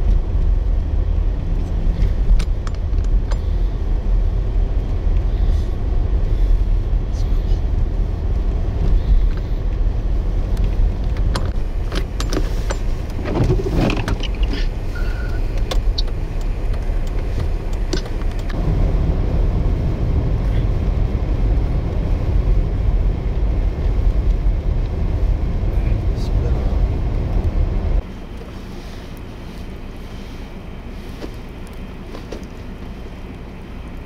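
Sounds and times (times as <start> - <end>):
road traffic rumble: 0.0 - 34.0
sharp clicks and knocks: 1.6 - 3.5, 10.5 - 14.7, 15.5 - 18.6.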